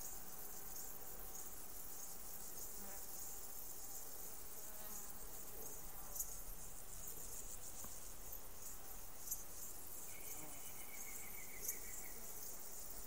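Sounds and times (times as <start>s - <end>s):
insects chirring: 0.0s - 13.0s.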